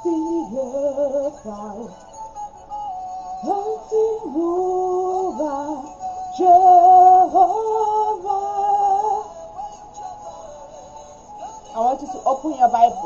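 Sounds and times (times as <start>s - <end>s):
woman singing slow melody: 0.0s - 13.0s.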